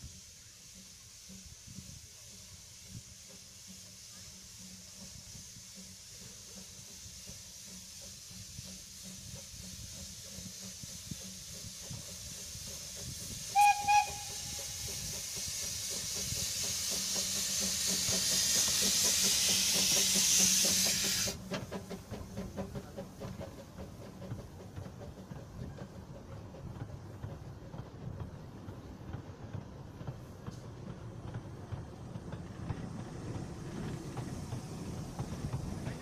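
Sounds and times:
steam locomotive hiss: 0.0s - 36.0s
train wheels knocking: 0.9s - 36.0s
steam whistle toots: 13.4s - 15.2s.

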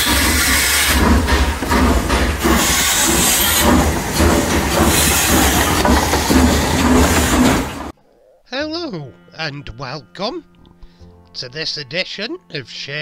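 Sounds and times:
steam train running: 0.0s - 8.0s.

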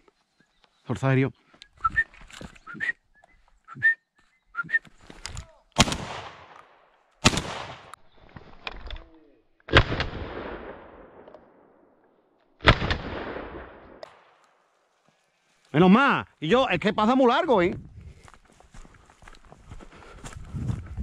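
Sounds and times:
shotgun shots echoing: 5.8s - 8.0s, 9.7s - 11.8s, 12.6s - 14.3s.

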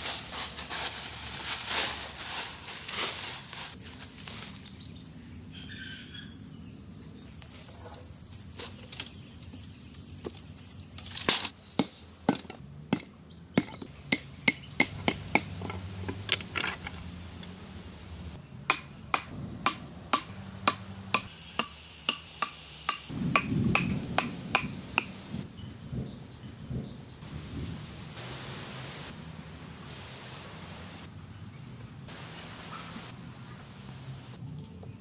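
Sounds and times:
blade chopping wooden stakes: 11.0s - 16.9s, 18.7s - 25.1s
wooden club pounding stakes: 11.8s - 16.8s, 18.7s - 25.1s
low rumble: 19.3s - 21.2s
insect whine: 21.3s - 24.2s.

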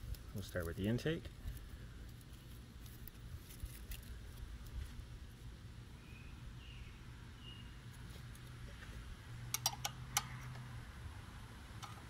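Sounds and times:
wrench clicking on metal: 9.5s - 10.3s.

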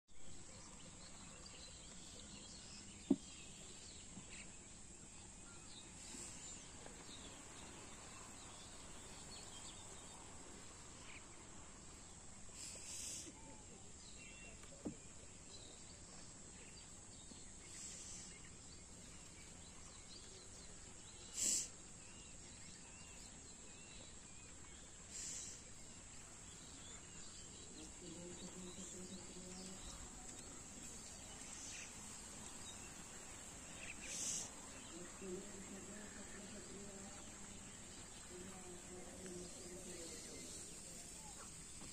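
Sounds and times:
short hissing rushes: 12.5s - 13.4s, 17.7s - 18.5s, 21.2s - 21.8s, 25.1s - 25.7s, 33.6s - 34.8s.

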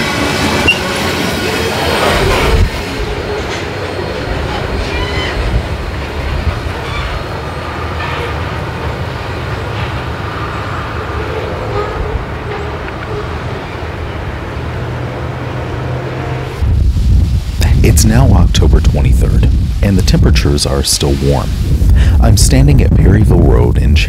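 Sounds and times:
railcars rolling on rails: 0.0s - 16.6s.

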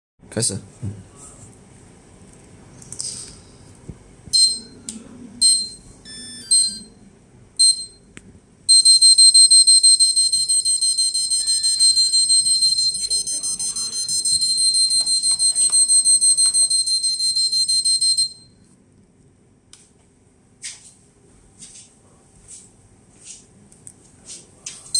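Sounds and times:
high-pitched motor beeps: 4.4s - 4.8s, 5.4s - 7.0s, 7.6s - 8.0s, 8.7s - 18.5s.

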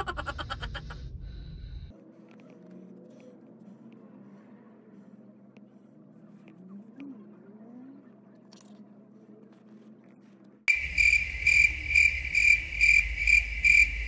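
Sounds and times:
low rumble: 0.0s - 1.9s, 10.7s - 14.0s
faint low hum: 0.0s - 14.0s
loud high-pitched pulsing trill: 10.7s - 14.0s.

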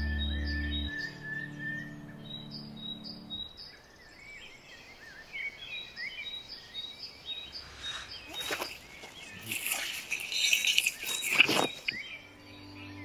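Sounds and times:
soft background music: 0.0s - 3.6s, 12.0s - 13.0s
songbirds calling and singing: 0.0s - 13.0s.

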